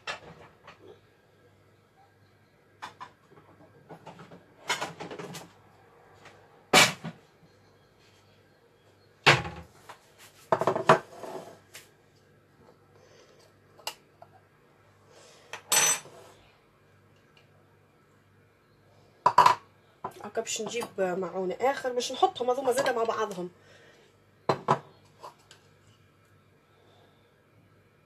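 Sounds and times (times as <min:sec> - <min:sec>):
dishes knocking and clinking: 0:10.5 - 0:11.1, 0:19.3 - 0:19.6, 0:24.5 - 0:24.9.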